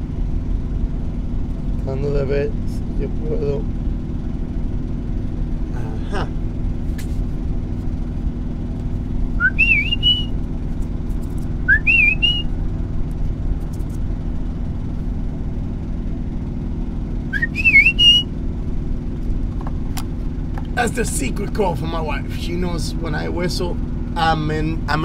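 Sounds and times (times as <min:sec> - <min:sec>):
steady low hum: 0:00.0 - 0:25.0
man whistling: 0:09.4 - 0:10.3, 0:11.7 - 0:12.5, 0:17.4 - 0:18.3.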